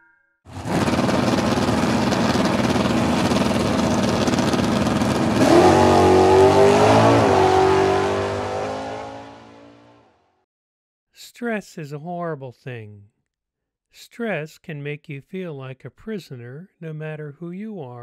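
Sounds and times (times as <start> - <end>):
engine revving: 0.5 - 10.2.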